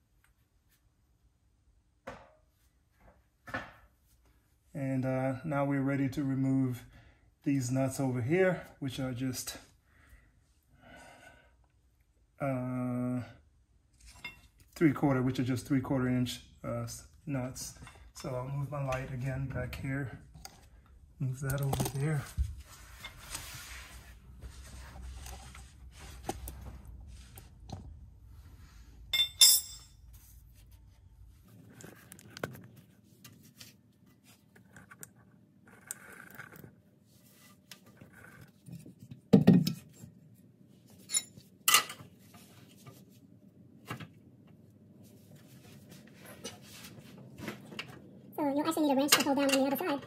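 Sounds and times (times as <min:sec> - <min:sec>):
metal hand tools clinking: 0:29.2 - 0:30.0.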